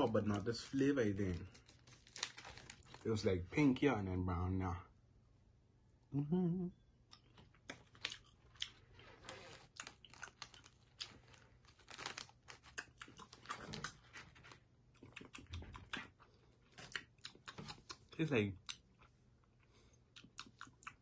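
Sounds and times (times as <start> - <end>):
candy packet crackling: 0.0 - 3.4, 7.3 - 15.2.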